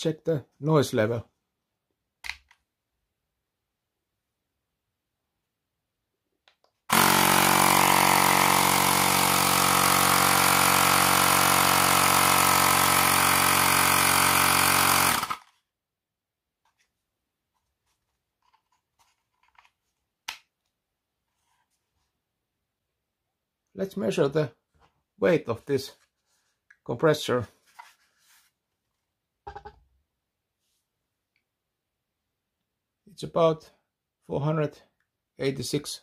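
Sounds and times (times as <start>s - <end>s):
air compressor pump running: 6.9s - 15.4s.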